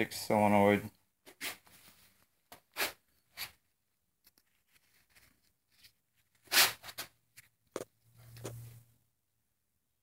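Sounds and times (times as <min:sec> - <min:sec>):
rustling and scraping handling: 0:01.2 - 0:08.9.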